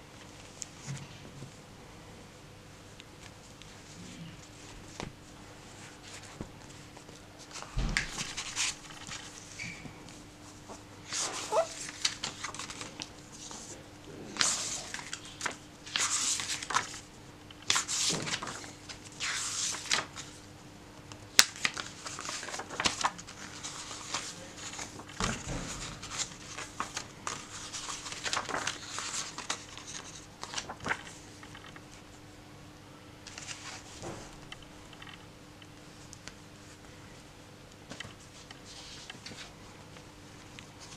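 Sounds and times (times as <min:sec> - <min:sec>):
book pages turning: 0:05.7 - 0:17.0, 0:17.6 - 0:20.4, 0:21.4 - 0:32.1, 0:33.2 - 0:36.9, 0:37.8 - 0:40.9.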